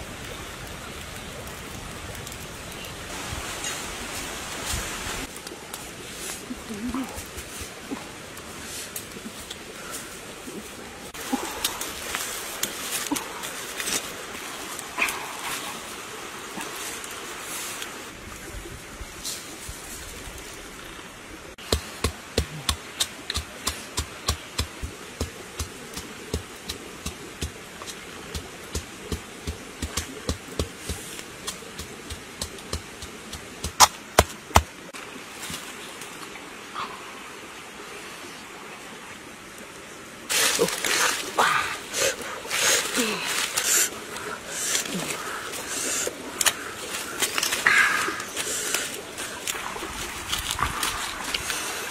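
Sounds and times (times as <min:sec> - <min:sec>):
steady hiss: 0:00.0 - 0:51.9.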